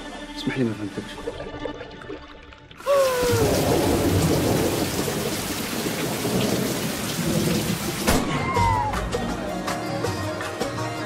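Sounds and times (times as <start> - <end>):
short falling wail: 2.8 - 4.2, 8.2 - 9.2.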